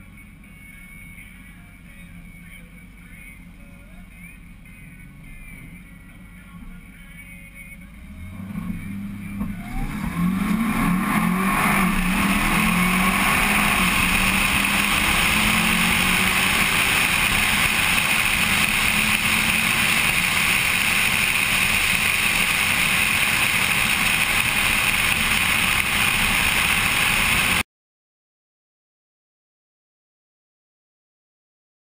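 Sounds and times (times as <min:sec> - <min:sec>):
car engine accelerating hard: 0:07.9 - 0:27.6.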